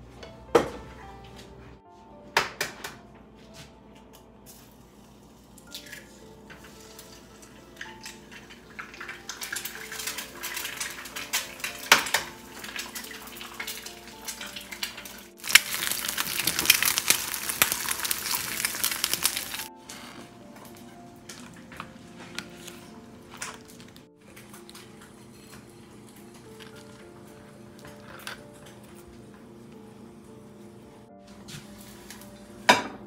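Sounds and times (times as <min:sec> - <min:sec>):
soft background music: 0:00.0 - 0:33.0
eggs sizzling in hot oil: 0:04.7 - 0:19.7.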